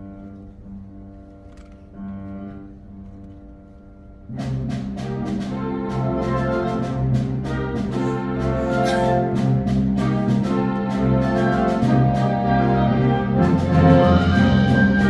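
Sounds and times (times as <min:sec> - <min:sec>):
orchestra playing classical music: 0:00.0 - 0:15.0.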